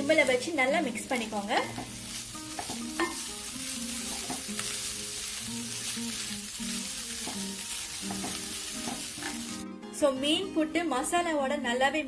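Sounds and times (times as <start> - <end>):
food sizzling in a pan: 0.0 - 9.6
soft background music: 0.0 - 12.0.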